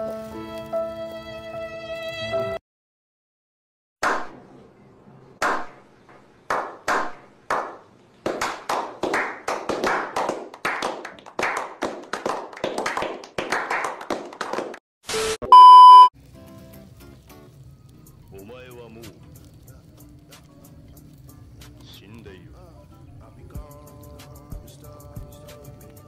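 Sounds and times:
people clapping: 6.5 - 14.8
steady loud beep: 15.5 - 16.1.

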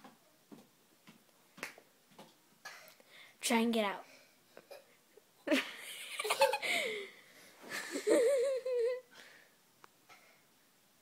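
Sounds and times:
child laughing: 5.5 - 7.0, 7.7 - 9.1.

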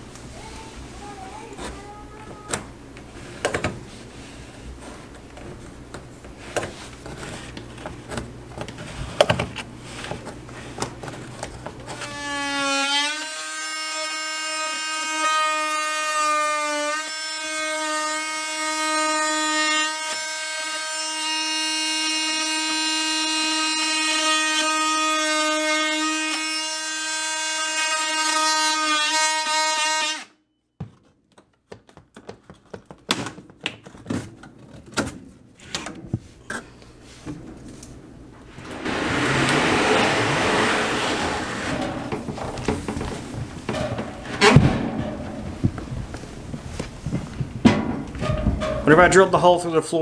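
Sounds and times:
oscillating multi-tool buzzing: 11.9 - 30.3.

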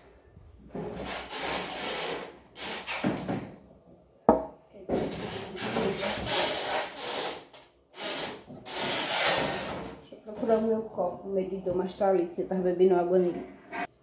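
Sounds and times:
rubbing and scraping on counter: 4.9 - 7.5, 13.1 - 13.9.

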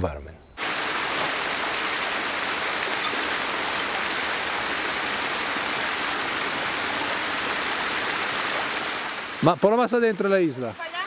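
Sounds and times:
river water rushing: 0.6 - 11.0.

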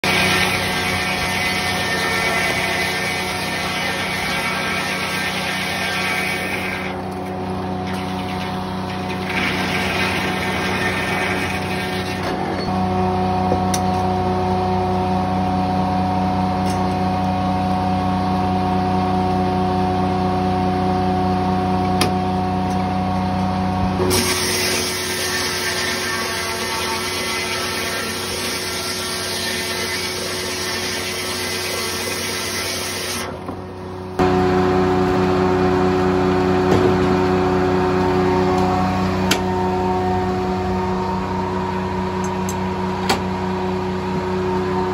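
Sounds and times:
circular saw blade cutting wood: 0.0 - 12.5, 24.0 - 33.4
sawmill drive drone: 0.0 - 44.9.

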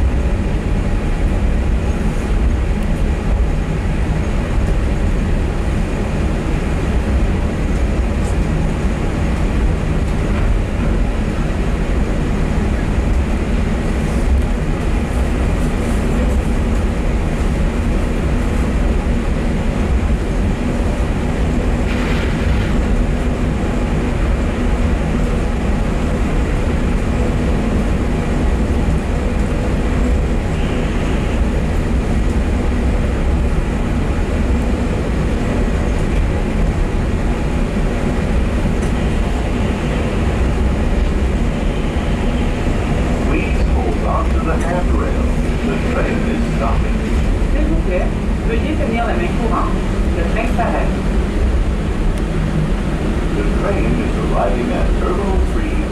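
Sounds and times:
shuttle train rumble: 0.0 - 55.9.

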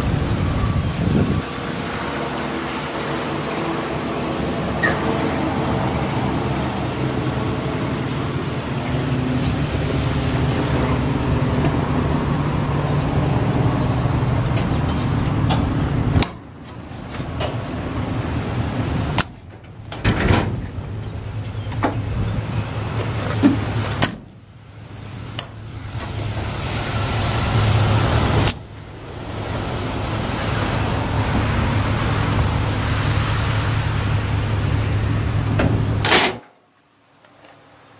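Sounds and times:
door latches clicking and knocking: 35.6 - 36.5.

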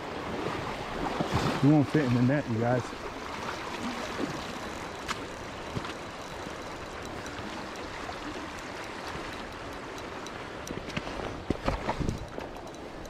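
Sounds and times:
light clicks: 4.4 - 13.0.

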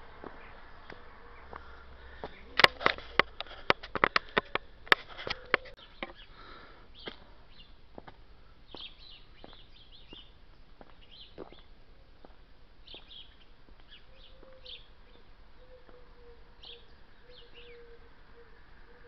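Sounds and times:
sharp clicks and taps: 2.6 - 6.2
faint bird chirps: 12.8 - 19.0.

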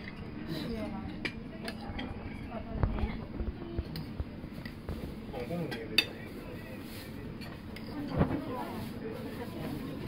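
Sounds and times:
diners chatting: 0.0 - 10.0
dishes and cutlery clinking: 3.8 - 10.0.

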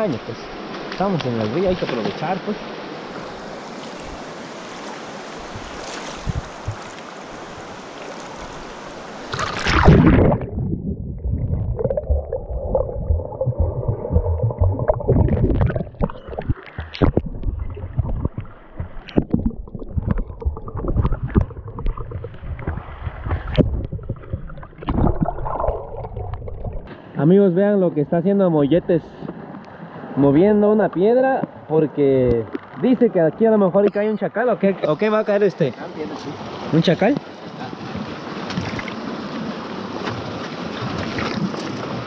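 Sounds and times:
river water rushing: 0.0 - 10.4
loud splash: 9.3 - 26.9
underwater gurgling and bubbling: 9.3 - 26.9.

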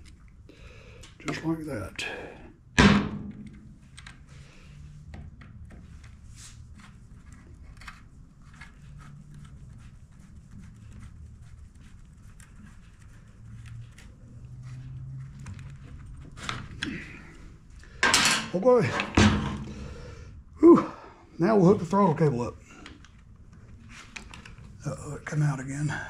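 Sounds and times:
metal parts clicking and scraping: 17.9 - 19.2.

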